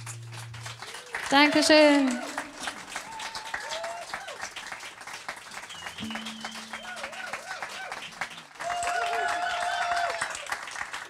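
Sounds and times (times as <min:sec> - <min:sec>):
loud sustained note: 0:00.0 - 0:02.8, 0:06.0 - 0:07.7
audience applauding: 0:00.0 - 0:11.0
wavering held tones: 0:06.0 - 0:07.7.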